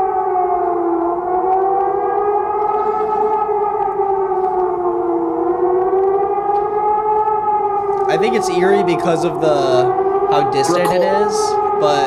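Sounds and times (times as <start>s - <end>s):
siren wailing: 0.0s - 12.0s.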